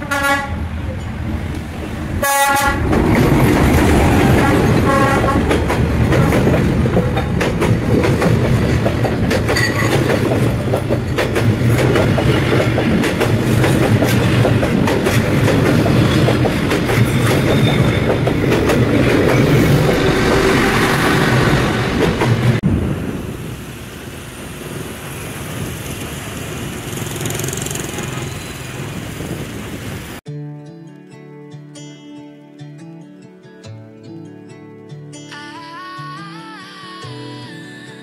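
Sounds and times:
train horn blast: 0:00.0 - 0:00.6, 0:02.2 - 0:02.9, 0:04.3 - 0:05.6
train rumbling past: 0:00.0 - 0:30.2
train wheels knocking: 0:02.8 - 0:22.6.

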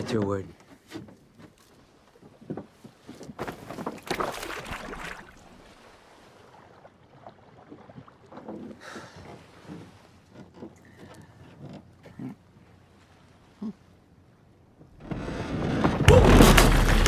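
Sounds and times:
water: 0:00.0 - 0:17.0
wind: 0:00.0 - 0:17.0
fishing net splashing into water: 0:03.5 - 0:05.9.

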